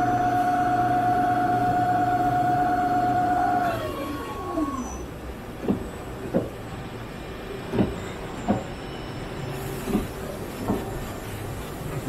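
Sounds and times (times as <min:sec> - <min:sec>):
lathe machine hum: 0:00.0 - 0:05.1.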